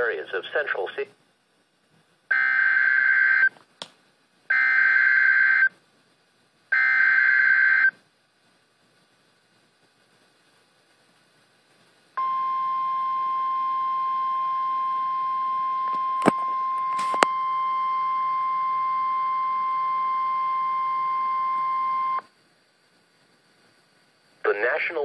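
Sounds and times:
weather radio alarm tone: 0:12.2 - 0:22.2.

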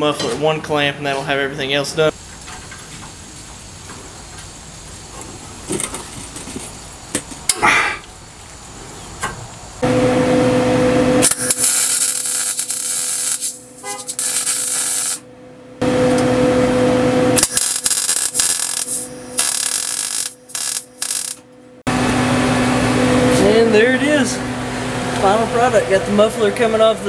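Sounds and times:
welder arc sizzling on steel: 0:11.2 - 0:15.2, 0:17.4 - 0:21.4.

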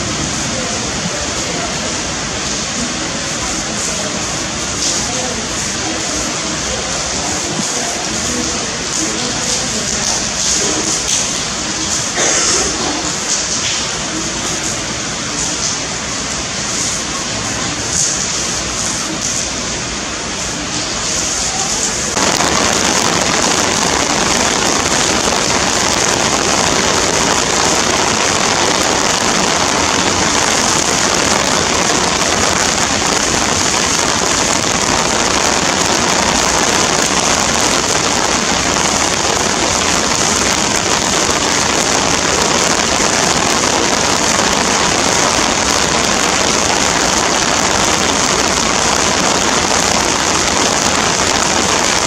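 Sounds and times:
heavy torrential rain: 0:00.0 - 0:52.0.

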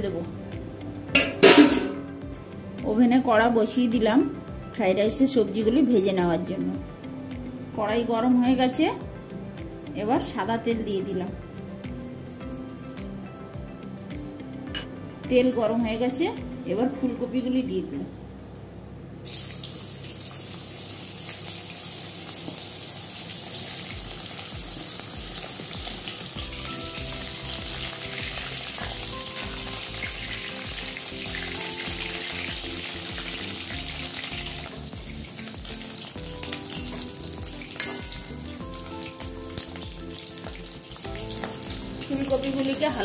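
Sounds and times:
background music with steady beat: 0:00.0 - 0:18.2, 0:23.9 - 0:43.0
metal spatula scraping pan: 0:01.2 - 0:02.1
vegetables sizzling in hot oil: 0:19.2 - 0:43.0.

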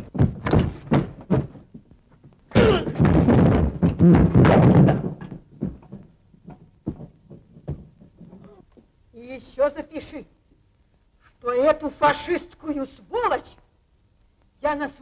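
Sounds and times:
fistfight thuds and knocks: 0:00.0 - 0:01.8, 0:02.5 - 0:08.5
crashing and scuffling: 0:00.0 - 0:08.8.

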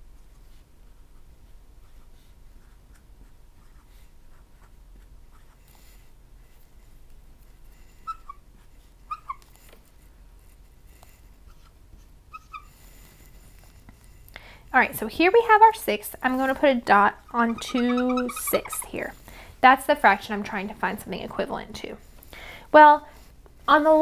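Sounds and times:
high marker squeaks: 0:08.0 - 0:08.4, 0:09.0 - 0:09.6, 0:12.3 - 0:12.7, 0:17.2 - 0:19.1
marker scratching on whiteboard: 0:11.5 - 0:12.7, 0:16.3 - 0:19.1.

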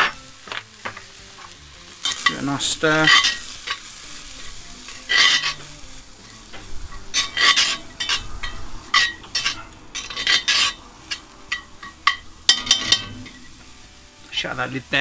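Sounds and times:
fat sizzling: 0:00.0 - 0:15.0
metal spoon scraping a pot: 0:03.0 - 0:03.9, 0:05.0 - 0:13.5.

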